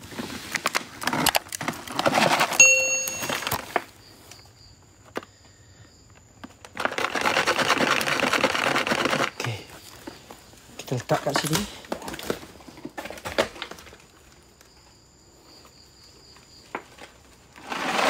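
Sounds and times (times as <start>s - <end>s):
short beep tone: 2.6s - 3.5s
dry leaves and twigs crackling: 6.4s - 15.1s.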